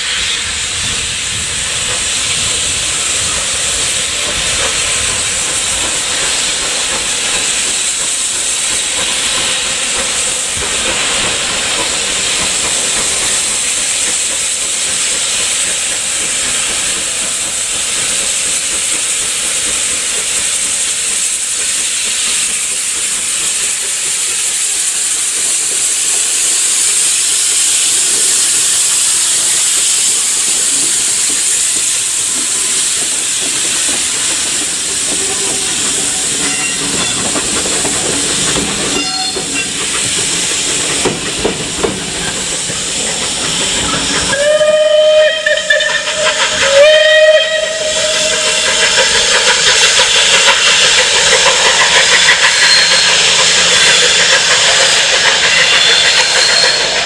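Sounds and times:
steam locomotive hissing: 0.0s - 57.0s
locomotive whistle blasts: 39.0s - 39.7s, 43.9s - 48.4s.

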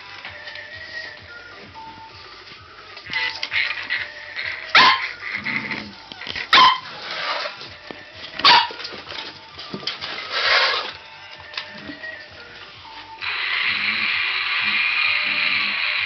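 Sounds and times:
puppy barking: 4.7s - 5.2s, 6.5s - 6.9s, 8.4s - 8.8s.

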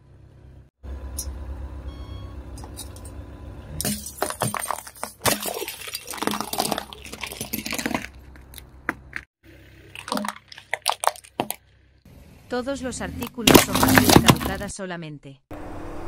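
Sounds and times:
glass flasks cracking and shattering: 3.8s - 8.6s, 9.8s - 11.6s.

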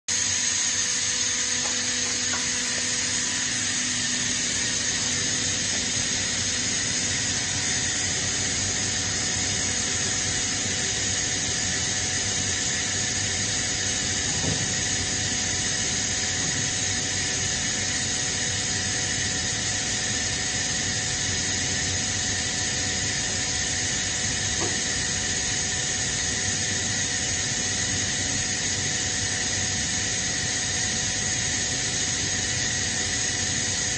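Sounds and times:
high whine: 0.1s - 19.5s
air compressor running: 0.1s - 33.9s.

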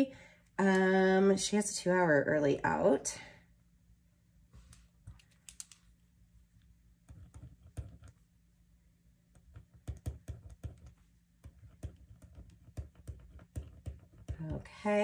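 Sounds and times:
pen writing on paper: 7.1s - 8.2s, 9.4s - 14.4s.

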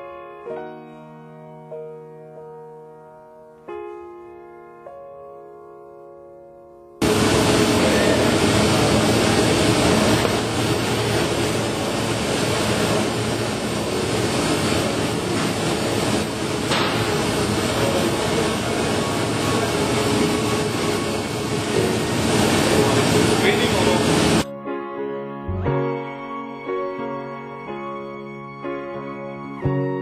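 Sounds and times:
cutting machine running: 7.0s - 24.4s.

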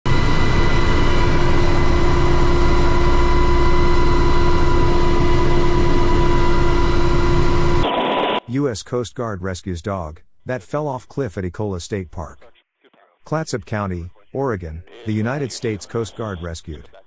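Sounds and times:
helicopter cabin drone: 0.1s - 8.4s
turbine whining tones: 0.1s - 8.4s.

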